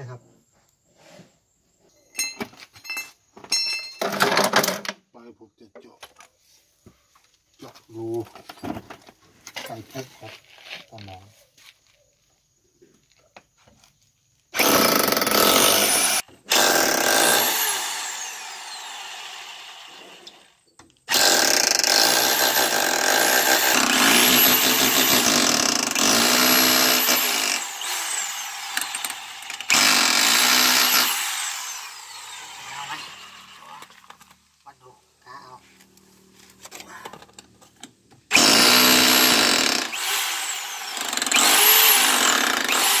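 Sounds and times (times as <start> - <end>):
hammer drill boring into masonry: 14.6 - 33.9, 38.3 - 43.0.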